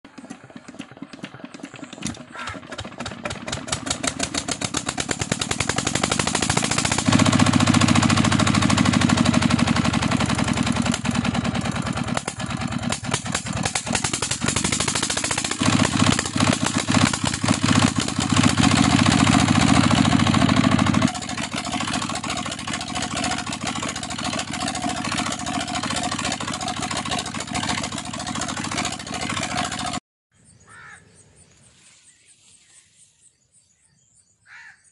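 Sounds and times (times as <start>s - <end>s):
diesel engine starting and running: 0.0s - 30.0s.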